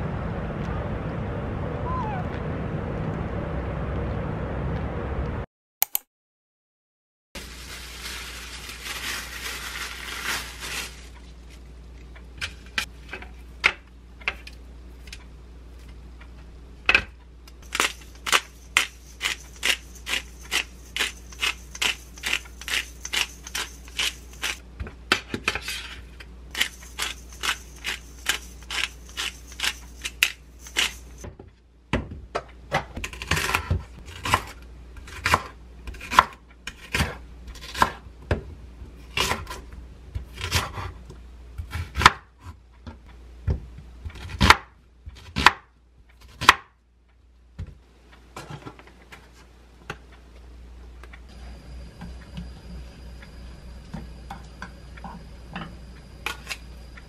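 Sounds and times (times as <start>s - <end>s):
seasoning grinder clicking: 17.6s - 24.6s, 26.6s - 31.1s
knife chopping on wooden board: 43.5s - 45.7s.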